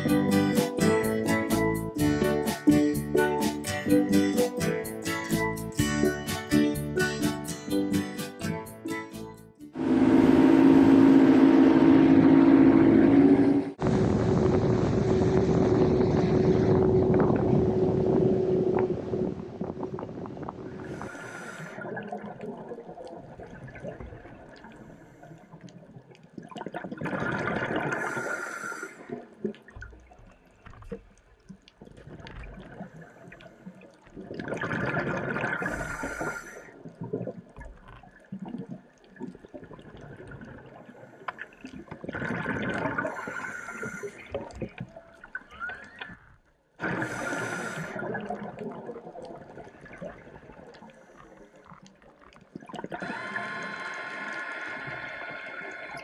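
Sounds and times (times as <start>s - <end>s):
faint crackle: 13.8s - 56.0s
bubbles: 14.3s - 28.4s, 29.0s - 56.0s
diver breathing through regulator: 20.8s - 21.9s, 27.9s - 29.2s, 35.5s - 36.8s, 43.0s - 44.4s, 46.8s - 48.2s, 53.0s - 56.0s.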